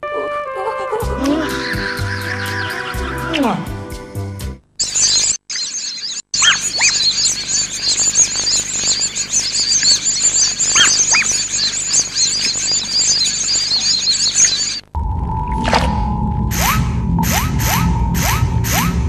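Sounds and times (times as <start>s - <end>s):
rubber ducks squeaking: 4.8s - 14.8s
steady tone: 14.9s - 19.0s
low rumble: 15.0s - 19.0s.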